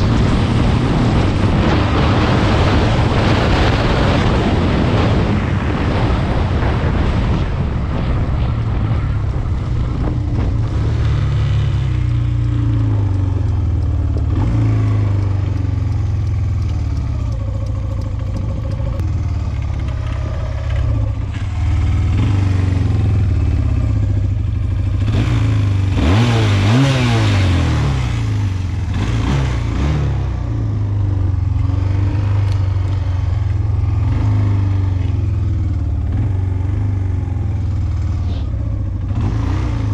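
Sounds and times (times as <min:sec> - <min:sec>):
wind on microphone: 0:00.0 - 0:12.7, 0:17.1 - 0:23.8
quad bike engine revving: 0:09.9 - 0:39.9.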